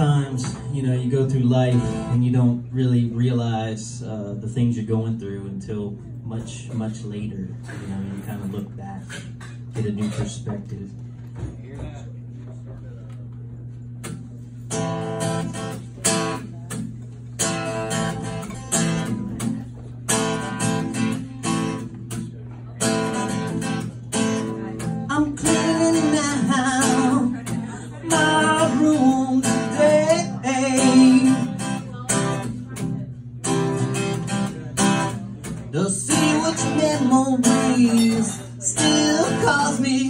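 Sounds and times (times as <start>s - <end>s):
acoustic guitar strumming: 0.0s - 10.4s, 13.9s - 40.0s
man singing: 25.1s - 31.7s, 35.7s - 40.0s.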